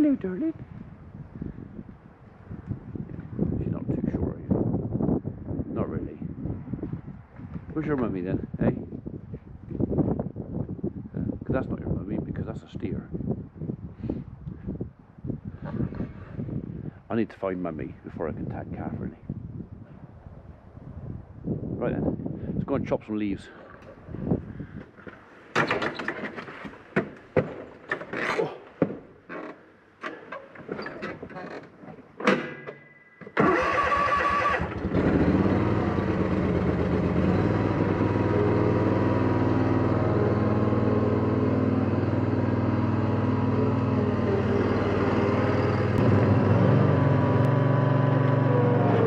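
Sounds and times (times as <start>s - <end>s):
engine starter cranking: 33.2s - 41.4s
ride-on mower engine idling: 33.4s - 48.6s.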